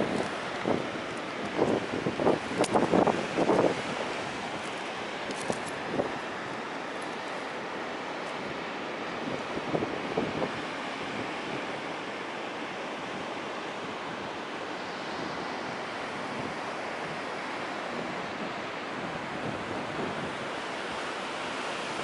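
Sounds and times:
strong wind on microphone: 0.0 - 6.2, 8.4 - 11.8, 15.2 - 17.3, 17.9 - 20.6.

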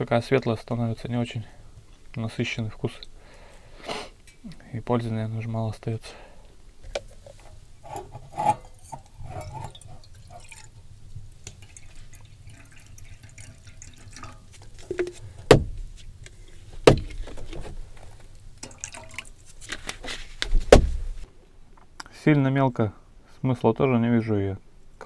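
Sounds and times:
sharp knocks: 14.9 - 15.9, 16.8 - 17.2, 20.5 - 21.1
handling rustles and clicks: 19.5 - 21.3.

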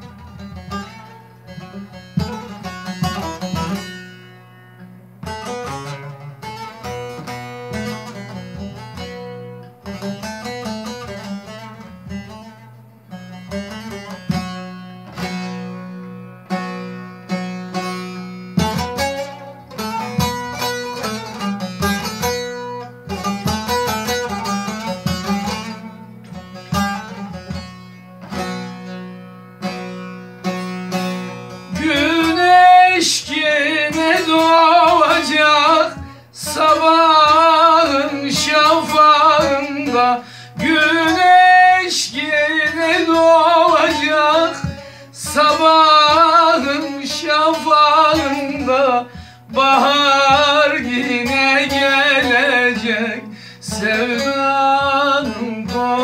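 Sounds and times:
plucked long-necked lute: 0.0 - 56.0
man singing: 31.7 - 56.0.

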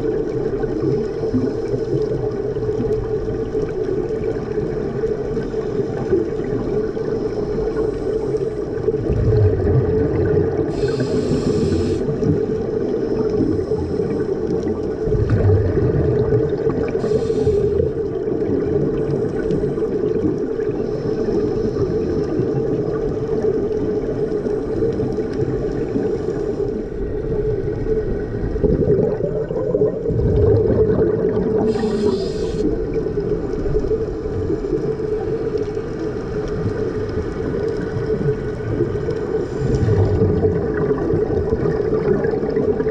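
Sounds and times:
low underwater drone: 0.0 - 42.9
rumble of exhaled bubbles: 0.0 - 42.9
regulator hissing inhalations: 10.7 - 12.3, 17.0 - 18.0, 31.6 - 32.8.

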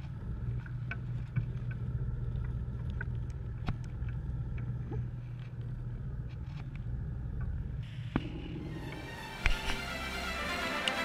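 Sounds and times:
small clicks and ticks: 0.0 - 8.3
boat engine humming: 0.0 - 11.0.

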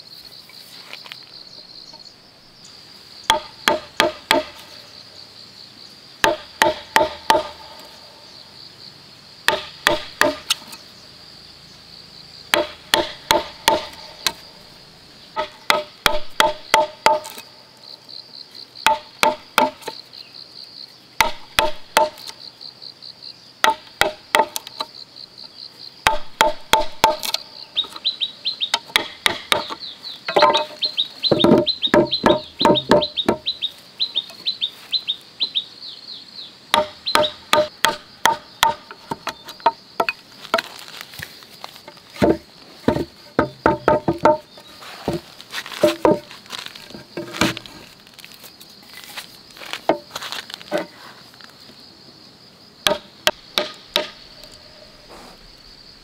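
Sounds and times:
mallet striking chisel into wood: 3.3 - 4.6, 6.2 - 7.6, 9.5 - 10.6, 12.5 - 14.4, 15.4 - 17.4, 18.9 - 19.8, 21.2 - 22.3, 23.6 - 24.7, 26.1 - 27.4, 28.8 - 30.7, 31.3 - 33.4, 36.7 - 40.6, 42.2 - 44.4, 52.9 - 54.2.

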